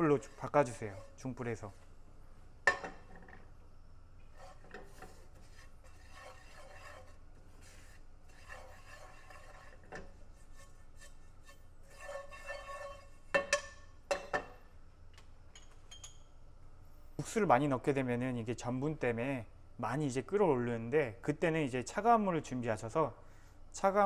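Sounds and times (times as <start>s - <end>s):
spatula scraping a frying pan: 0.0s - 1.8s, 4.3s - 13.7s.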